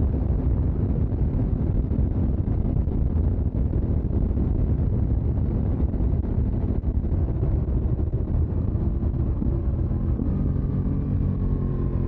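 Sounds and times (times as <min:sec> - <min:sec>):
motorcycle engine drone: 0:00.0 - 0:12.0
wind buffeting microphone: 0:00.0 - 0:12.0.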